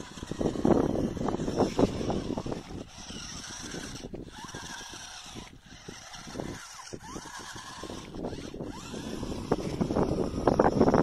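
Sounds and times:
small electric motor running: 0:00.0 - 0:11.0.

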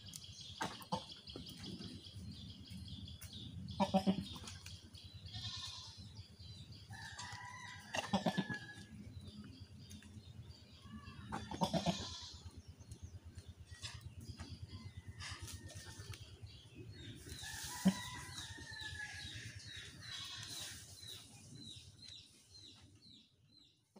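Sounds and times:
small birds chirping: 0:00.0 - 0:23.9
chickens clucking and crowing: 0:06.3 - 0:21.8.

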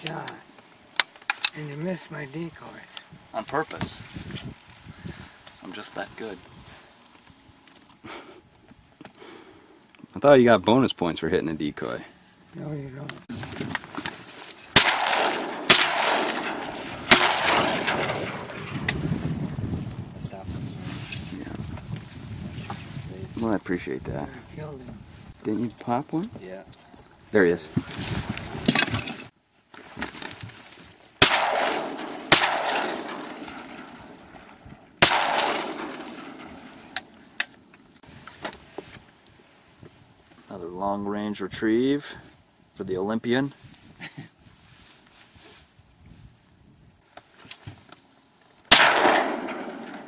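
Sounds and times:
shotgun shots echoing: 0:14.8 - 0:18.9, 0:31.2 - 0:37.0, 0:48.7 - 0:50.0.

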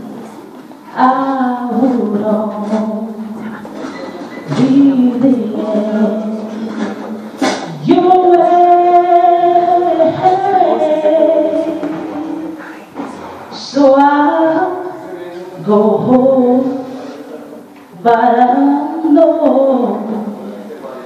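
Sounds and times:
woman singing a slow ballad: 0:00.9 - 0:03.5, 0:04.5 - 0:12.8, 0:13.5 - 0:15.0, 0:15.6 - 0:16.9, 0:17.9 - 0:20.4.

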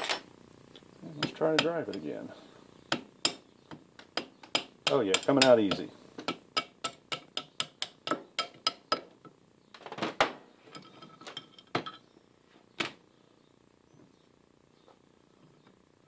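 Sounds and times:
hammer tapping on metal drift: 0:01.2 - 0:02.1, 0:02.9 - 0:09.3.

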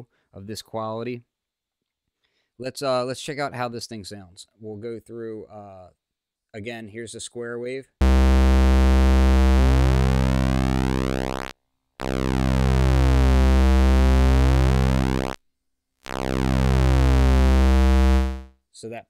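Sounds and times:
synthesizer pulse wave tone: 0:08.0 - 0:15.4, 0:16.1 - 0:18.5.

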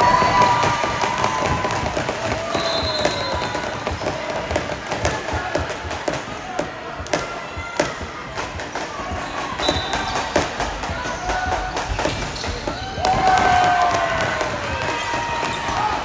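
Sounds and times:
sneaker squeaks: 0:02.3 - 0:04.6, 0:07.6 - 0:13.3.

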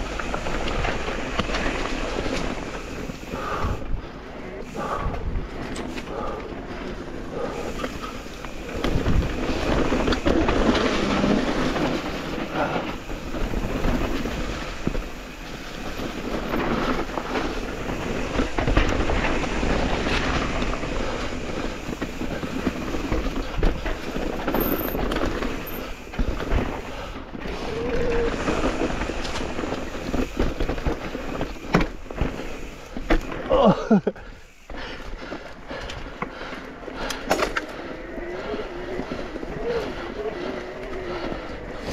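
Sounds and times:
bike rattling and knocking: 0:00.0 - 0:03.9, 0:04.6 - 0:41.9
bike tyres rolling on dirt: 0:00.0 - 0:41.9.

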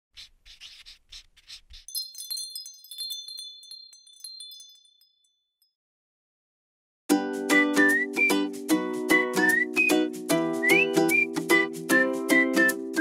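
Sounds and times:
soft brush swishes: 0:00.2 - 0:01.9
wind chimes tinkling: 0:01.9 - 0:05.7.

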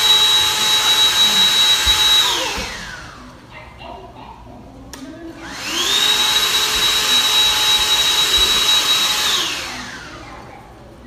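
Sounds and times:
handheld vacuum cleaner whine: 0:00.0 - 0:03.3, 0:05.3 - 0:10.3.

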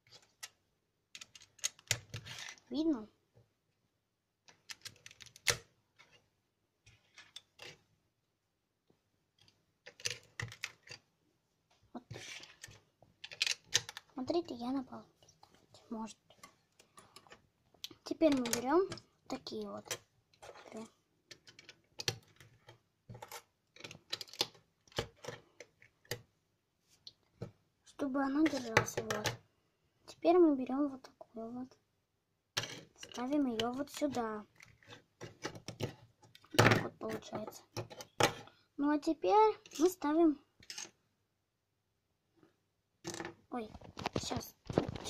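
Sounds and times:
plastic bricks clicking: 0:00.1 - 0:02.6, 0:09.4 - 0:11.0, 0:12.2 - 0:14.1, 0:21.3 - 0:26.2.

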